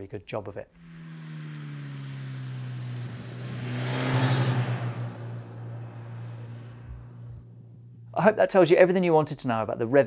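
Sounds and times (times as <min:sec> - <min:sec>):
motorcycle riding past: 0:00.7 - 0:08.2.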